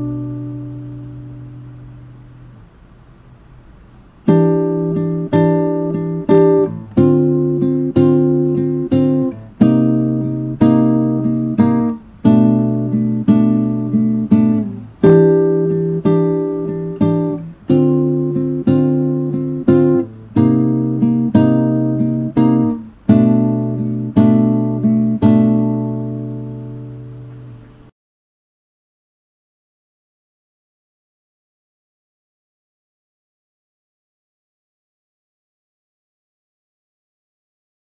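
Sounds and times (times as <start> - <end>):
acoustic guitar chords strummed: 0.0 - 2.7, 4.1 - 27.9.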